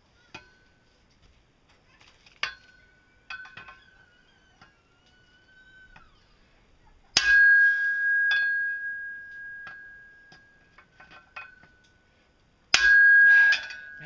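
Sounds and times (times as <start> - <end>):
pipe ringing: 2.4 - 3.9, 7.2 - 14.0
hammer striking steel pipe: 7.2 - 11.8, 12.7 - 14.0.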